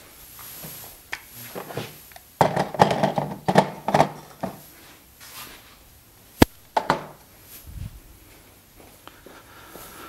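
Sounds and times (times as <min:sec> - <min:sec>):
hard objects clattering: 0:01.6 - 0:04.6.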